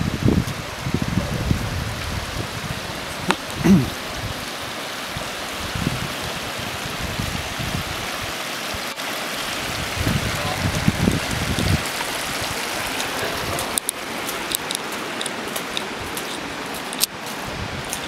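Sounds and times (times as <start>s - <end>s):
creek water running over rocks: 0.0s - 18.0s.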